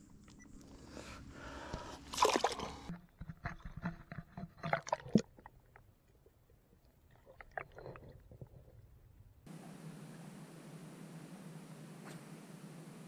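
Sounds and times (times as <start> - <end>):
fish splashing into water: 2.1 - 2.9
underwater gurgles and knocks: 2.6 - 9.2.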